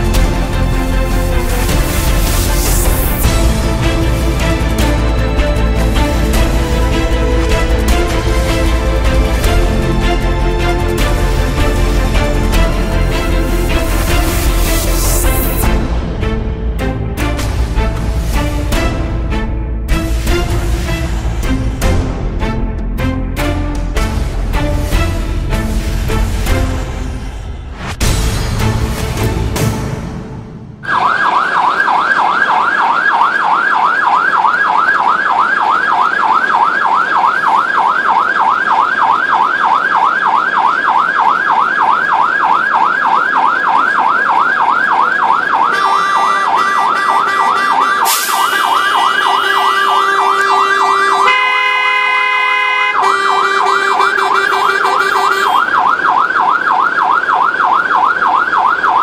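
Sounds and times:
siren yelping: 30.8 - 59.0
horn blasts: 45.7 - 55.8.

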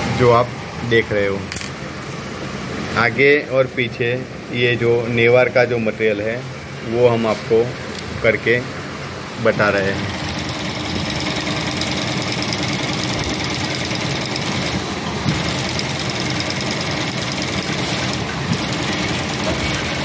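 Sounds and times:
industrial sewing machine running: 9.8 - 20.0.

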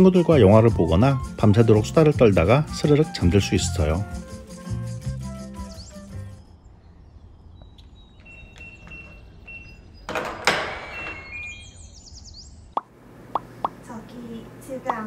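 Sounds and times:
keypad beeps: 8.2 - 9.9
door lock clunk: 10.0 - 11.6
high chirps: 10.9 - 12.9.

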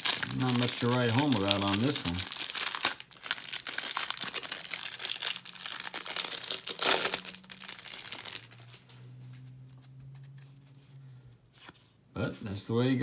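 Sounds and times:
plastic wrapper crinkling and tearing: 0.0 - 9.0.

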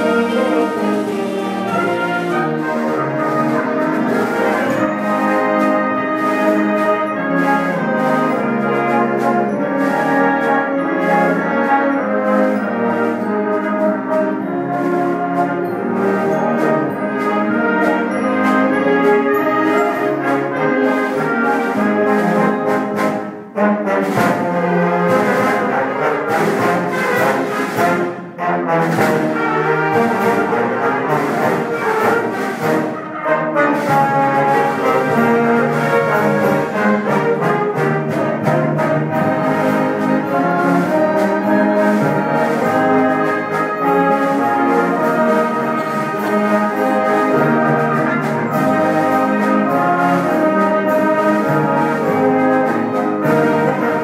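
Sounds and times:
concert band playing chords: 0.0 - 54.0.

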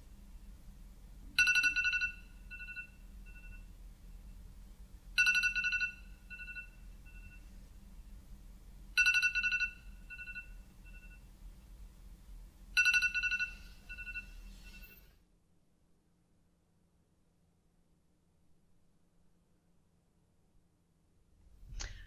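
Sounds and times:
smartphone alarm chime: 1.4 - 3.7, 5.2 - 7.5, 9.0 - 11.3, 12.8 - 15.1.

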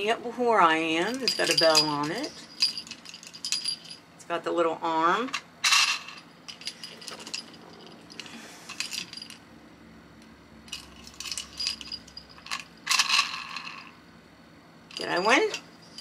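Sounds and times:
small jingle bell jingling: 1.0 - 4.0, 5.6 - 9.4, 10.7 - 13.9, 14.9 - 16.0.

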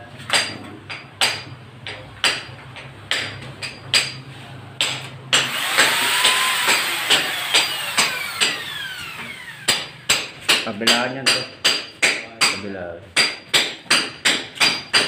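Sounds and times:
power tool whining: 5.4 - 9.7.

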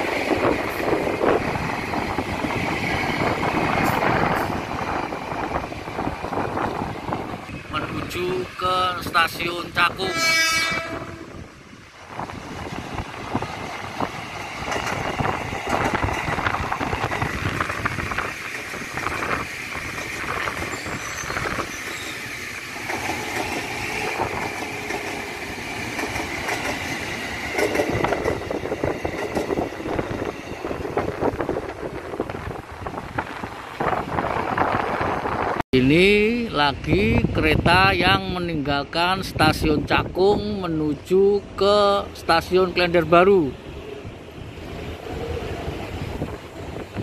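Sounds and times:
train wheels clattering over rails: 12.8 - 31.4.

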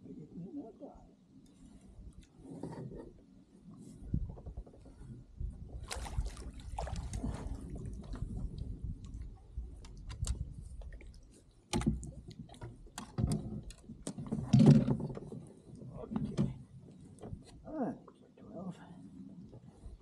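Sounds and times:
fishing tackle clicks and knocks: 9.7 - 15.4.

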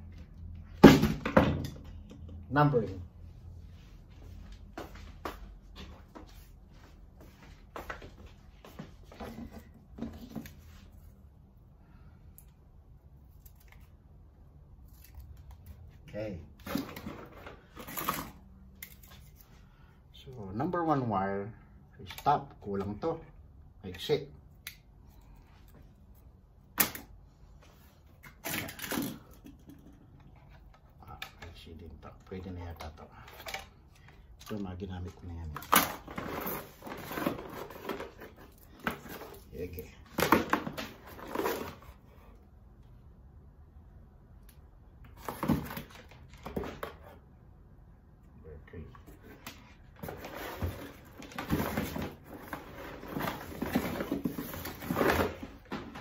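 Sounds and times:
rustling and clatter of objects: 4.0 - 11.3, 16.6 - 19.6, 27.5 - 42.4, 45.1 - 47.2, 48.8 - 56.0.

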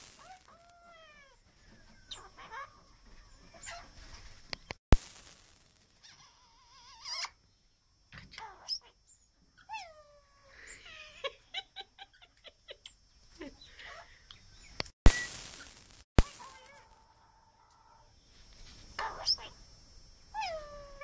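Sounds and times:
parrot chattering and whistling: 6.0 - 7.4, 19.0 - 19.6
loud bump with rustle: 15.1 - 17.0.

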